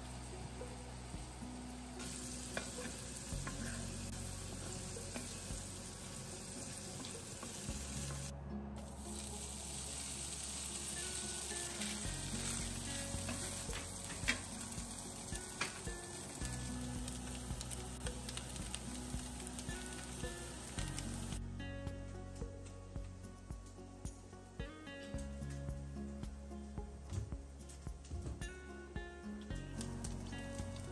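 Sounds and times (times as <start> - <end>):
food sizzling in hot oil: 0.0 - 21.4, 29.8 - 30.9
soft background music: 0.0 - 30.9.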